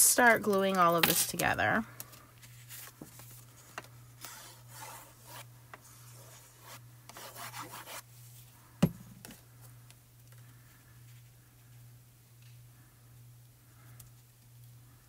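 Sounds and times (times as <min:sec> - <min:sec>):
paper handling: 0:02.1 - 0:04.7.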